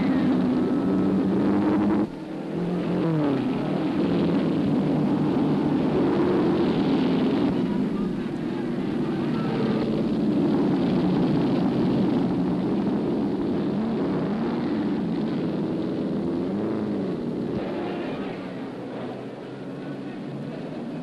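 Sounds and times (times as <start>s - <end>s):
racing car engines droning: 0.0s - 21.0s.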